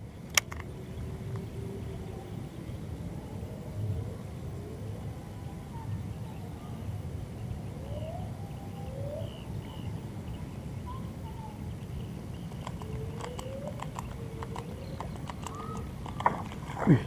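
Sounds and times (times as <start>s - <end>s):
low steady background noise: 0.0s - 17.0s
quick sharp clicks: 12.5s - 16.8s.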